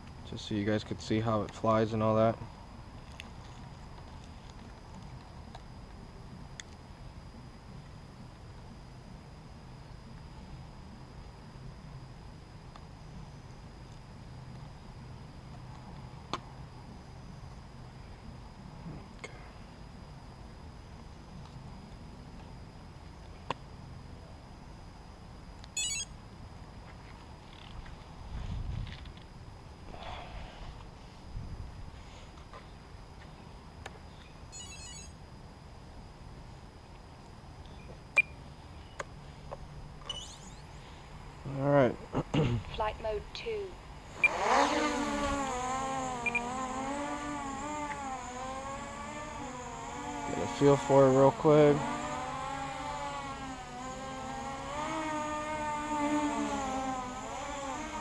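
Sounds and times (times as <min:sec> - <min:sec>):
quadcopter motors whining: 0:25.6 - 0:26.2, 0:27.4 - 0:31.2, 0:33.4 - 0:35.2, 0:40.0 - 0:58.0
high chirping beeps: 0:25.8 - 0:26.2, 0:34.2 - 0:35.2, 0:37.8 - 0:38.4, 0:40.0 - 0:40.7, 0:46.2 - 0:46.5.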